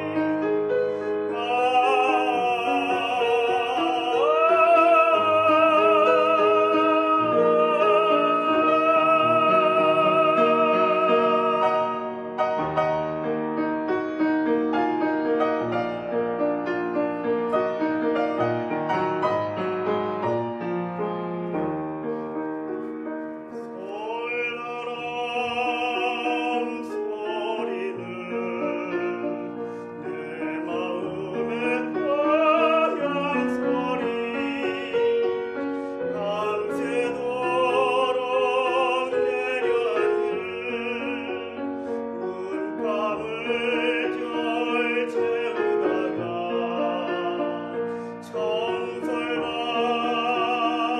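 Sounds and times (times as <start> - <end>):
tenor singing with vibrato: 0.0 - 13.3, 23.5 - 50.9
grand piano playing: 0.0 - 50.9.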